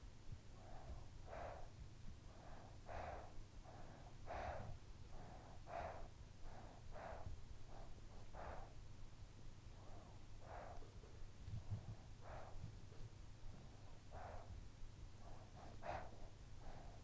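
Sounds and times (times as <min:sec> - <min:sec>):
child breathing softly: 0:00.5 - 0:08.9, 0:09.8 - 0:11.0, 0:11.6 - 0:12.7, 0:15.2 - 0:17.0.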